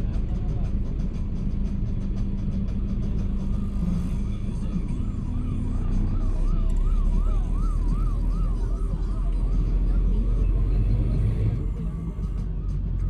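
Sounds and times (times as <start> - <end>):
traffic engines rumbling: 0.0 - 13.0
siren warbling: 3.2 - 13.0.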